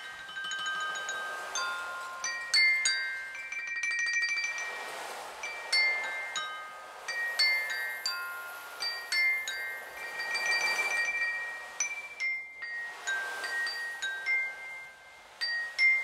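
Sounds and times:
bell-like notes on ceramic cups: 0:00.0 - 0:04.8
soft hiss: 0:00.0 - 0:16.0.

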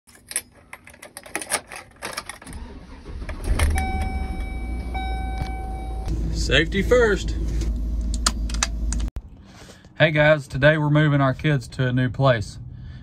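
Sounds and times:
truck engine cranking and idling: 0:02.1 - 0:09.1
dashboard warning tone: 0:03.5 - 0:06.1.

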